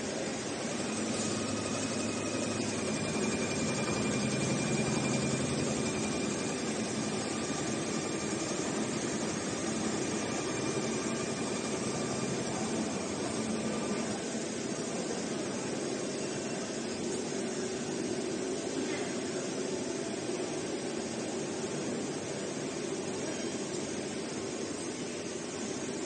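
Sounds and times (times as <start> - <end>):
sewing machine drone: 0.0 - 18.7
faint high whine: 0.0 - 26.0.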